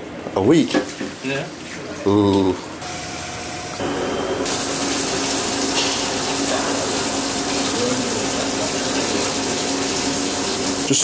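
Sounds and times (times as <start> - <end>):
water running into basket: 4.4 - 11.0.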